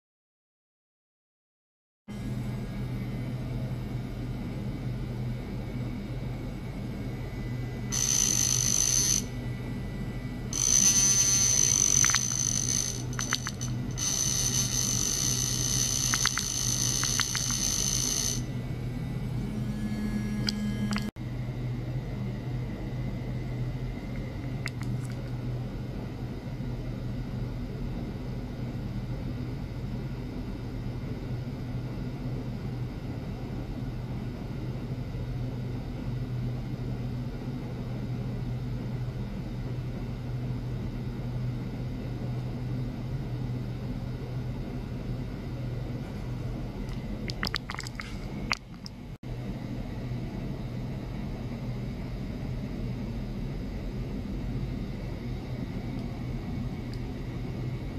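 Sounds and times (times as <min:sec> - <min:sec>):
low electrical hum: 0:02.1 - 0:57.9
high electronic tones: 0:07.9 - 0:09.4, 0:10.4 - 0:18.6, 0:19.2 - 0:21.1.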